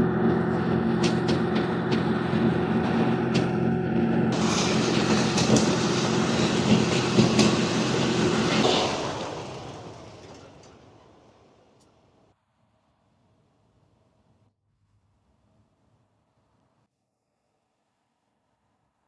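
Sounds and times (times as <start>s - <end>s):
blower roaring air: 0.0s - 12.0s.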